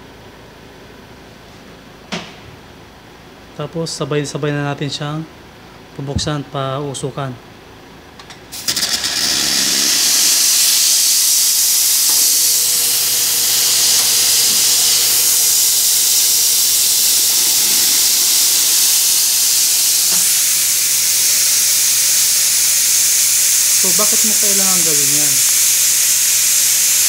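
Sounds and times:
steam hissing from espresso wands: 8.5s - 27.0s.

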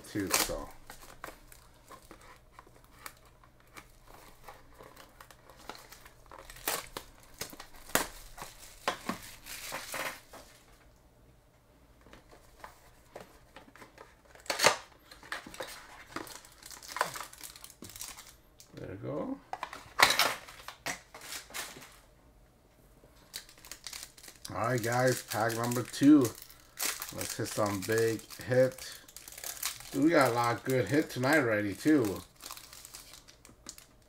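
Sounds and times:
card pack wrapper crinkling and tearing: 0.0s - 10.3s, 12.5s - 18.4s, 23.3s - 34.0s.

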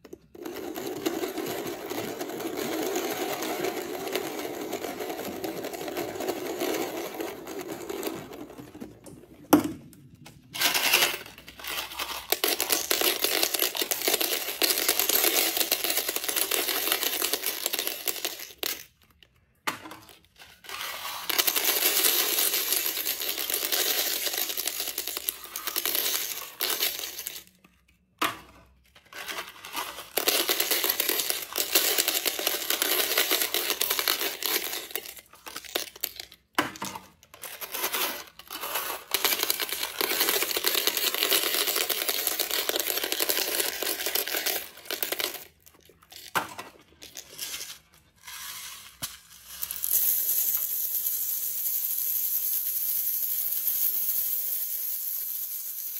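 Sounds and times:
hard candies rattling onto plastic: 0.1s - 9.1s, 10.6s - 19.3s, 20.0s - 27.7s, 29.0s - 47.7s.

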